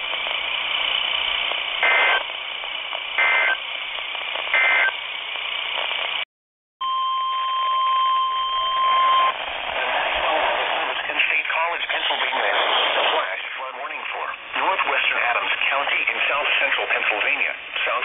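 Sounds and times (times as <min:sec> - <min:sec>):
radio hiss: 0:01.5 - 0:04.9, 0:09.2 - 0:18.0.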